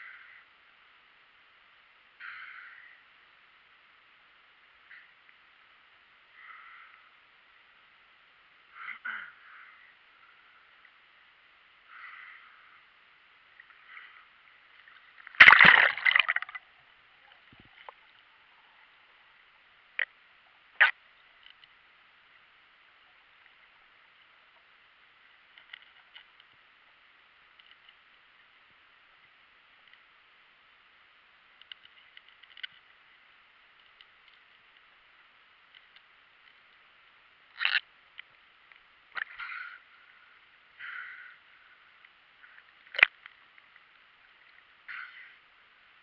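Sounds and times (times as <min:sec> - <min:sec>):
sharp clicks underwater: 0:14.7 - 0:18.2, 0:20.0 - 0:21.8, 0:25.4 - 0:26.6, 0:31.5 - 0:33.0, 0:33.6 - 0:35.0, 0:35.6 - 0:39.8, 0:42.0 - 0:45.2
splash into water: 0:15.3 - 0:16.6
faint ticks: 0:17.2 - 0:46.0.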